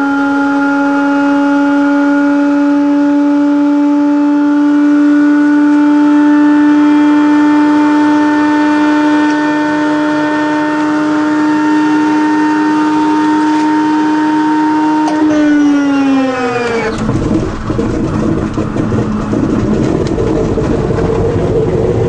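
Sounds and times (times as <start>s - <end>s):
radial aircraft engine droning: 0.0s - 22.0s.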